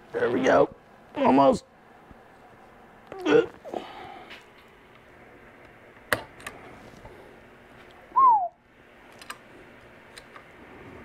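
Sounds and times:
person hooting: 0:08.2 - 0:08.6.

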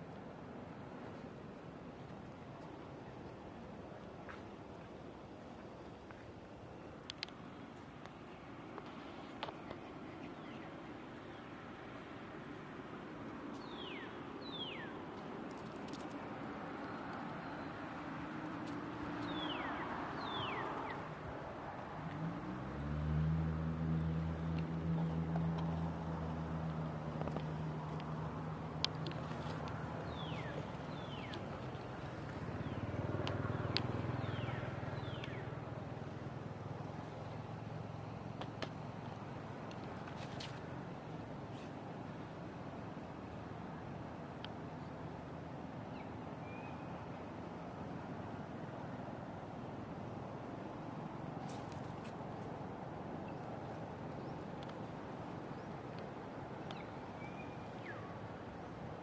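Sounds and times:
outdoor background hiss: 0:00.0 - 0:59.0.

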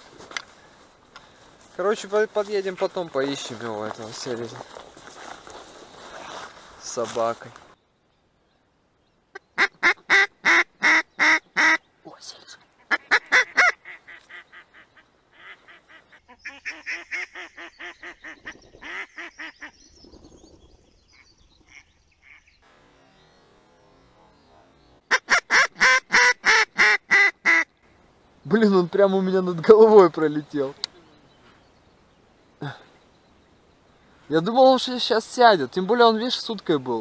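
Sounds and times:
duck quacking: 0:09.4 - 0:11.8, 0:12.8 - 0:19.7, 0:24.2 - 0:27.7.

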